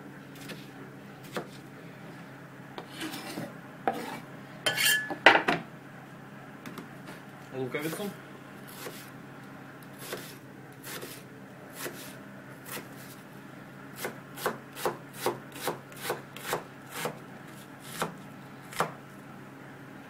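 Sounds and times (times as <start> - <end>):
knife chopping onion on wooden board: 1.2 - 1.6, 8.7 - 9.1, 10.0 - 13.0, 14.0 - 17.2, 17.8 - 19.0.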